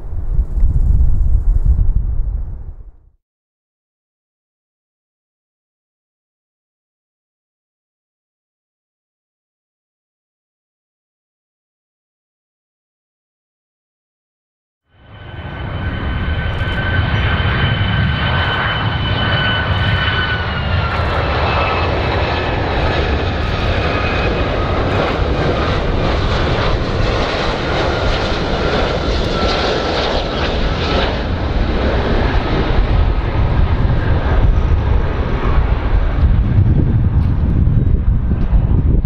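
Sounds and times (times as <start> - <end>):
jet engines whining and rumbling: 14.9 - 39.0.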